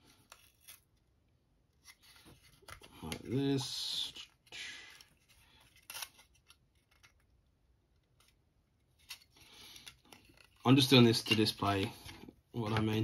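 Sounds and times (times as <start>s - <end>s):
faint clicks of parts handled: 5.0s - 13.0s.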